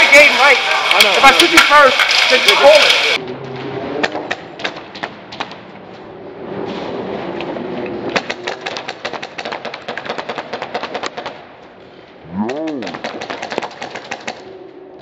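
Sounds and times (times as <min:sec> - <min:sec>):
airsoft gunfire clacks: 0:08.1 - 0:11.4, 0:12.8 - 0:14.4.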